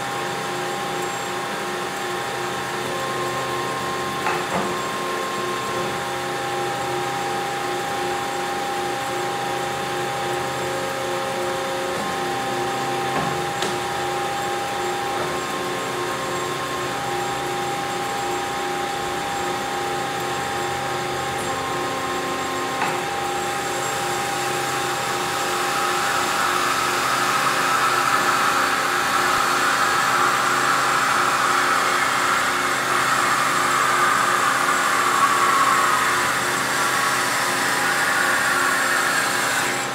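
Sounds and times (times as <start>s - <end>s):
bandsaw motor hum: 0.0s - 39.9s
saw blade cutting metal: 22.8s - 39.9s.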